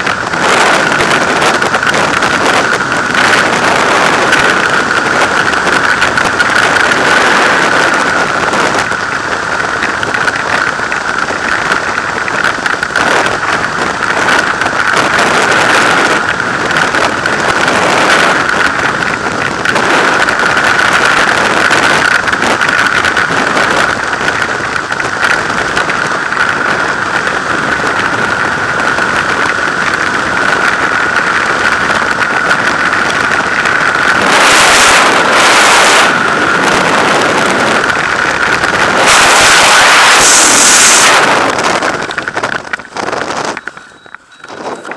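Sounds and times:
rushing freefall wind: 0.0 - 44.9
steady whistling tone: 43.5 - 44.9.

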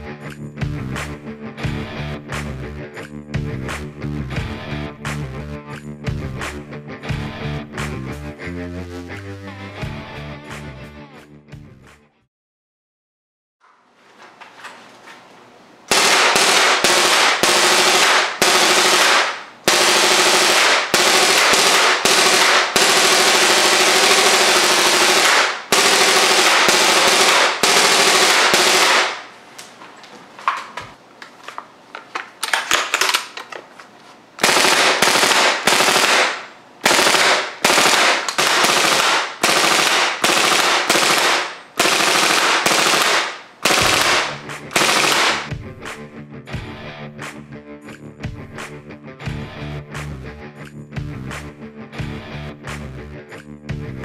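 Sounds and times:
airsoft gun firing full-auto: 15.9 - 29.3, 34.4 - 45.5.

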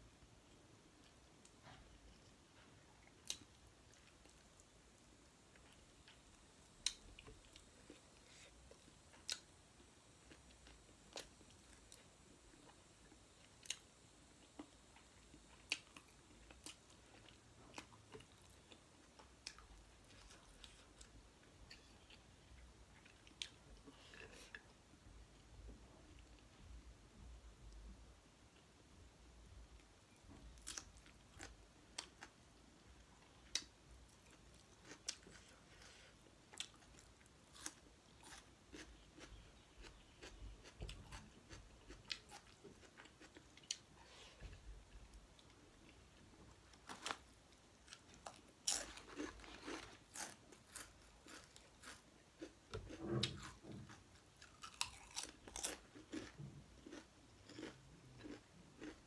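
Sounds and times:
person chewing and smacking: 33.2 - 46.0, 47.8 - 59.0.

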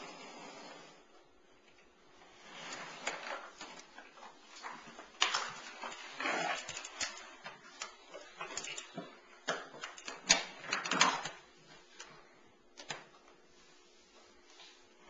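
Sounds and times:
toy walker rolling on wooden floor: 2.3 - 11.4.

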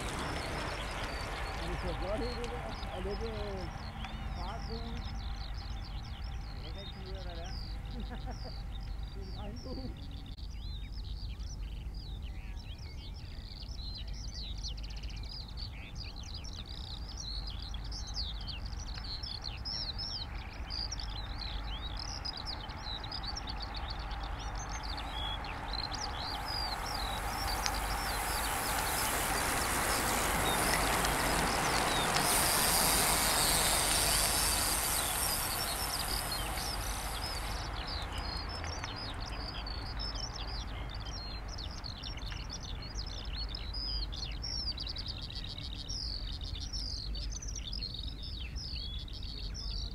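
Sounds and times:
bicycle tyres whirring on asphalt: 0.0 - 10.8, 12.0 - 45.1
small birds chirping: 0.0 - 49.9
steady low rumble: 19.7 - 44.6.

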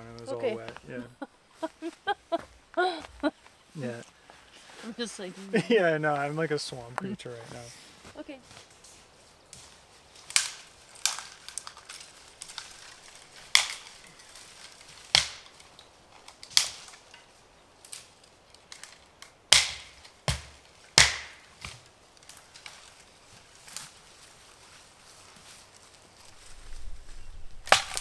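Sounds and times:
loud sharp cracks: 13.5 - 14.0, 15.1 - 15.6, 19.5 - 21.5, 27.6 - 28.0.

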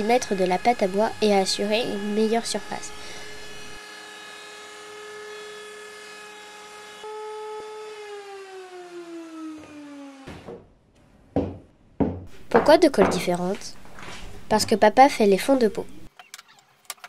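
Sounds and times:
router whining: 0.0 - 10.5.

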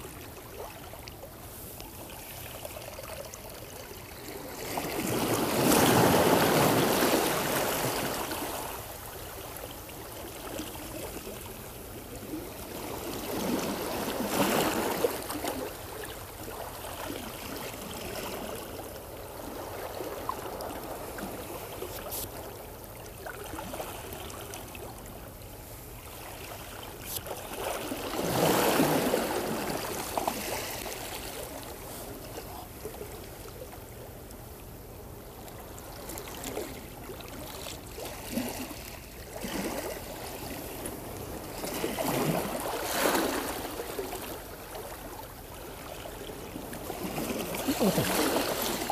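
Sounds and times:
water sloshing against rocks: 46.1 - 48.9.

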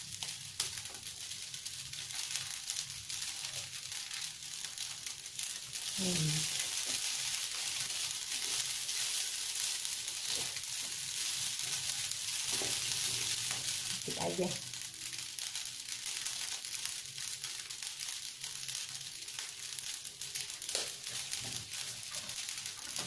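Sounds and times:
noodles sizzling in wok: 0.0 - 23.0.

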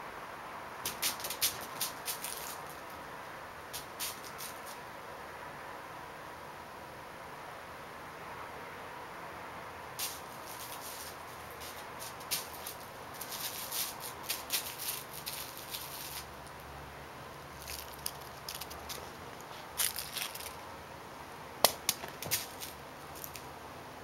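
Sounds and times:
crinkle ball toy crackling: 0.9 - 3.0, 10.0 - 16.7, 17.5 - 20.6.

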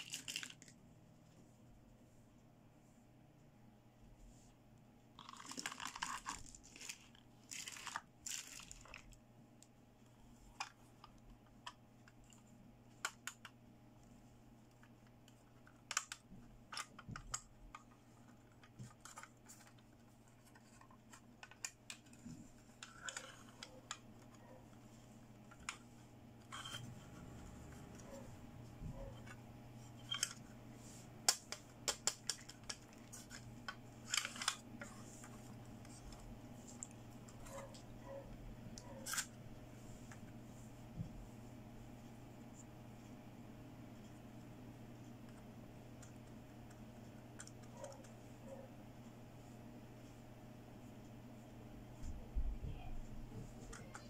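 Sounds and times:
plastic rustling and crinkling: 0.0 - 1.4, 5.2 - 9.7, 14.5 - 37.9.

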